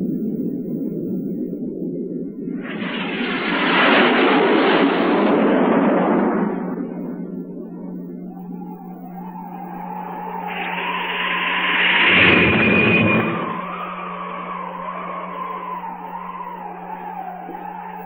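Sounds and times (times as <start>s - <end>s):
steady low hum: 0.0s - 18.0s
wavering high tone: 6.8s - 18.0s.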